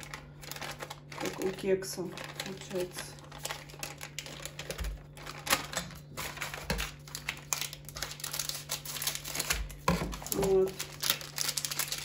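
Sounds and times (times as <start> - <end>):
paper wrapper crinkling: 0.0 - 12.0.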